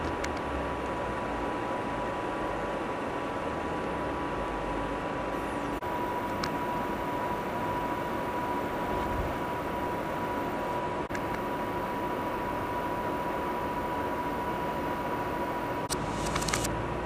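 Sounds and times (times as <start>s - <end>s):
thin steady tone: 5.4s - 16.7s.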